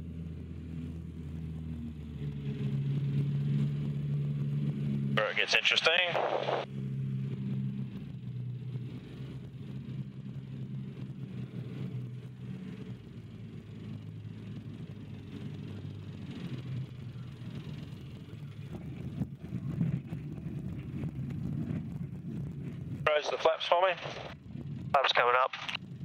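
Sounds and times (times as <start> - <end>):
light aircraft engine droning: 0.0 - 26.0
wheels rumbling on gravel: 8.2 - 26.0.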